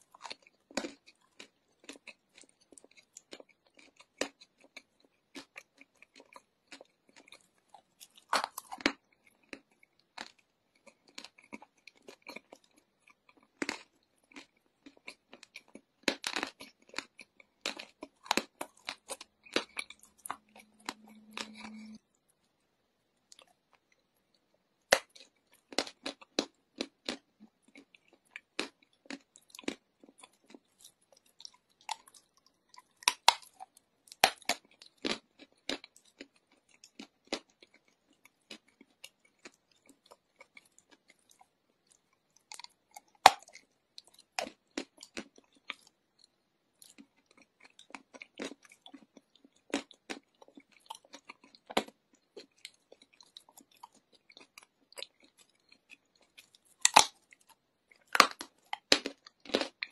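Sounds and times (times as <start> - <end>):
person chewing chalk crunching: 0.0 - 22.3, 24.8 - 59.9.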